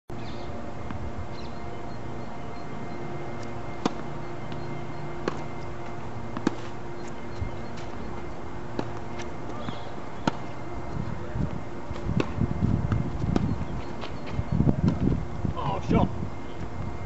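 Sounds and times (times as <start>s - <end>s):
steady background hum: 0.1s - 17.0s
tennis ball hit and bouncing: 3.3s - 10.6s.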